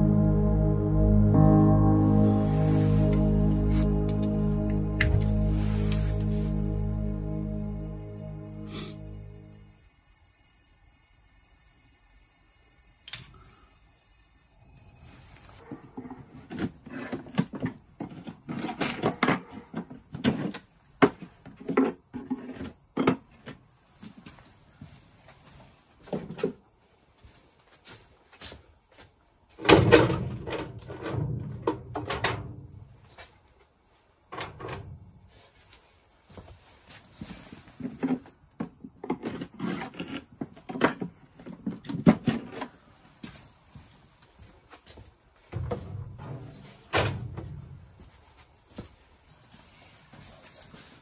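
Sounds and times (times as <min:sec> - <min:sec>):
wooden frames knocking and scraping: 0:29.7 - 0:33.2, 0:45.6 - 0:48.2.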